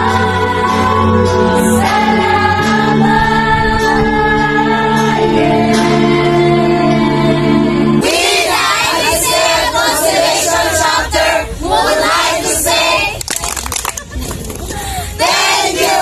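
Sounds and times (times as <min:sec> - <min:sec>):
group singing held chord: 0:00.0 - 0:13.1, 0:15.2 - 0:16.0
crowd shouting and chanting: 0:07.6 - 0:13.2, 0:15.1 - 0:16.0.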